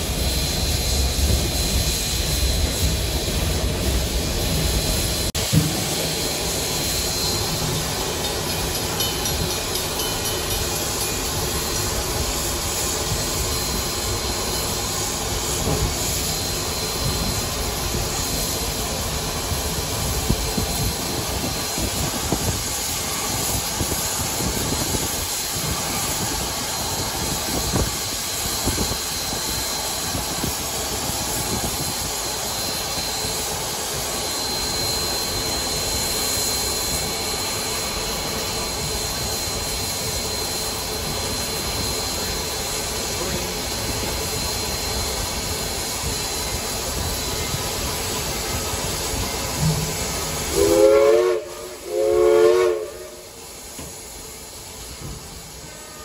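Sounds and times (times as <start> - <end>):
steam hissing: 0.0 - 56.0
steam whistle blasts: 49.6 - 53.5.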